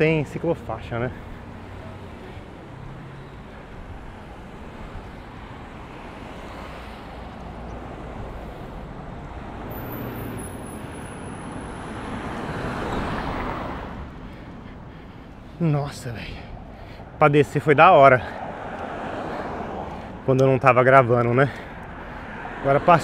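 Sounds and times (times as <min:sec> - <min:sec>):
traffic and road noise: 0:00.0 - 0:23.0.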